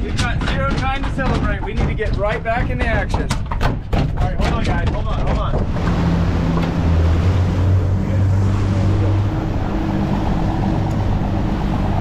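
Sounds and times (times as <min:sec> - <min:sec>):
churning wake water: 0:00.0 - 0:12.0
wind: 0:00.0 - 0:12.0
outboard motors humming: 0:04.7 - 0:12.0.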